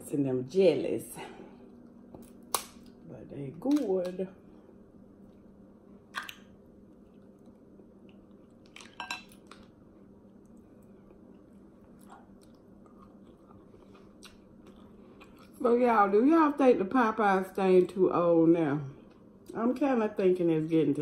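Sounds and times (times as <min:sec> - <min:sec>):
faint steady hum: 0:00.0 - 0:21.0
crab shells cracking: 0:02.1 - 0:03.0
close-up chewing: 0:10.4 - 0:15.6.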